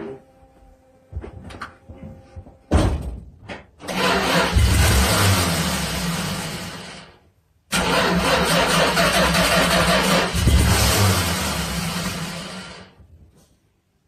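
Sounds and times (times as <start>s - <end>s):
race car engine cranking: 3.8s - 6.6s, 7.7s - 12.4s
loud race car engine running: 4.2s - 7.0s, 9.2s - 12.9s.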